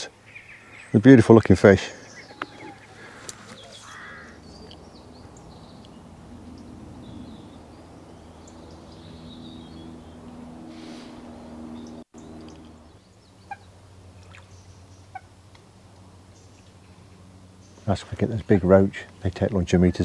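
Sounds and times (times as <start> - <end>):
bird chirps and calls: 1.8 - 13.7.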